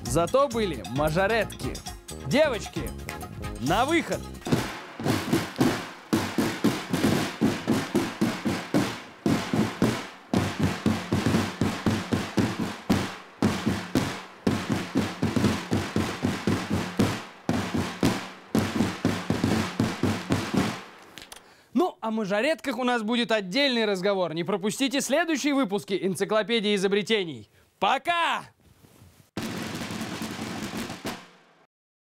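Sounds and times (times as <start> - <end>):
marching drum cadence: 0.9 - 21.2, 29.4 - 31.7.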